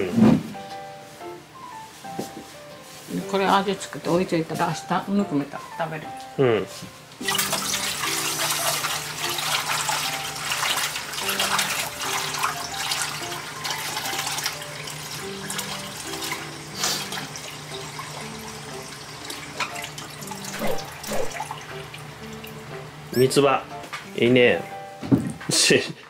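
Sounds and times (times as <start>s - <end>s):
soft background music: 0.0s - 26.0s
tap water splashing in sink: 7.2s - 16.5s, 18.9s - 21.9s.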